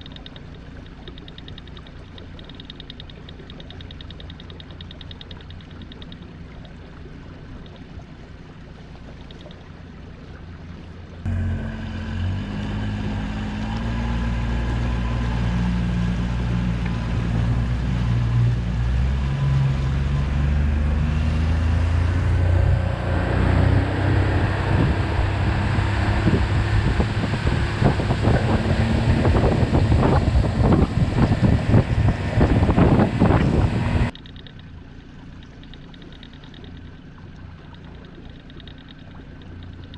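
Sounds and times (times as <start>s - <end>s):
outboard motor running: 0.0s - 39.9s
water noise from hull: 0.0s - 39.9s
wind on microphone: 14.2s - 34.1s.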